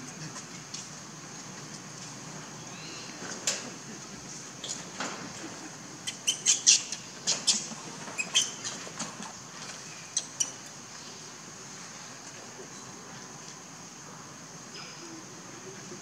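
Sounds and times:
infant monkey squealing: 0:06.0 - 0:08.8.

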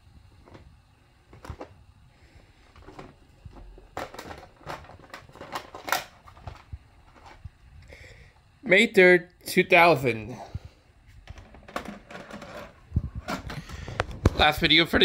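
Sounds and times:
plastic cassette clicks and rattles: 0:02.8 - 0:07.4.

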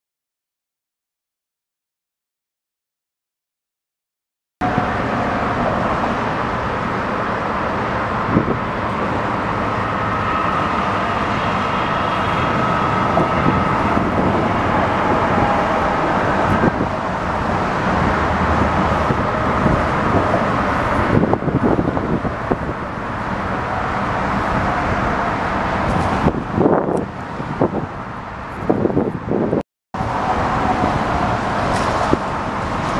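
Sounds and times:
broad rushing noise: 0:04.6 - 0:32.9
wind buffeting microphone: 0:07.5 - 0:32.9.

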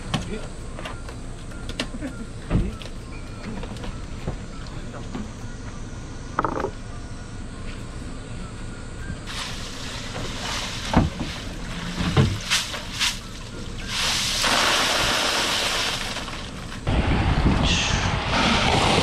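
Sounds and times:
water spilling with a hiss: 0:09.3 - 0:16.8
ice rattling out of a basket: 0:13.9 - 0:16.8
wind buffeting microphone: 0:16.9 - 0:19.0.

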